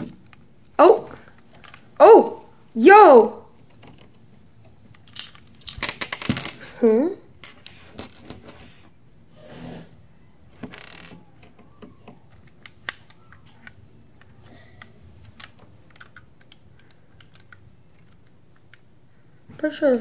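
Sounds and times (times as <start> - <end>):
plastic bricks clicking: 4.9 - 6.6, 15.2 - 18.8.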